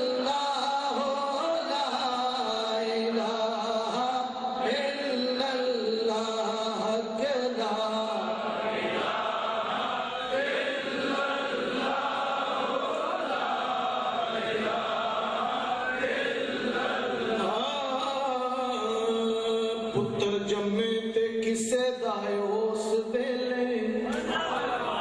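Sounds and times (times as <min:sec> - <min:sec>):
man chanting unaccompanied: 0:00.0 - 0:09.0, 0:15.7 - 0:25.0.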